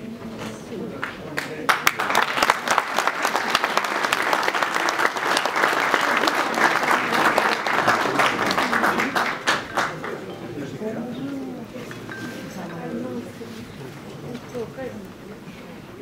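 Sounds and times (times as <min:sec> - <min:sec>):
audience applauding: 0:01.0 - 0:10.8.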